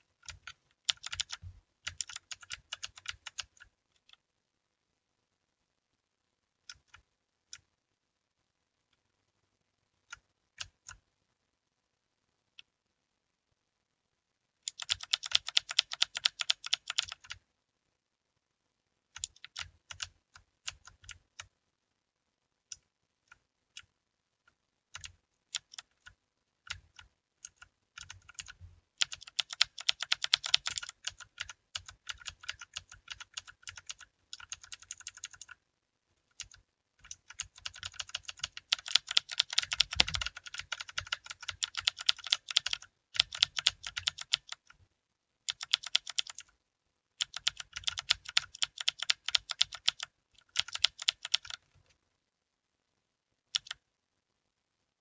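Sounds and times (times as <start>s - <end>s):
mechanical keyboard typing: 0.2s - 4.2s, 14.6s - 17.4s, 19.1s - 21.5s, 24.9s - 35.6s, 36.3s - 44.8s, 45.5s - 46.5s, 47.2s - 51.6s, 53.5s - 53.8s.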